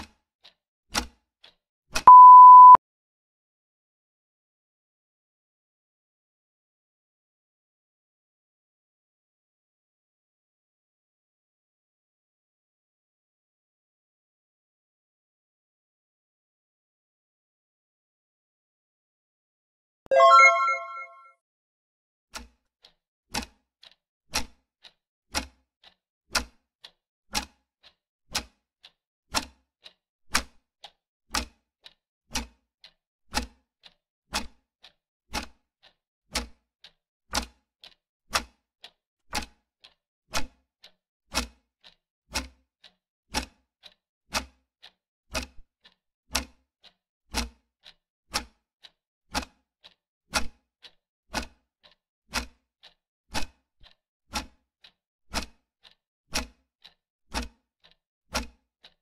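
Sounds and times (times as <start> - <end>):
clock ticking: 20.1 - 21.2, 49.4 - 50.5, 51.4 - 53.0, 53.8 - 54.5.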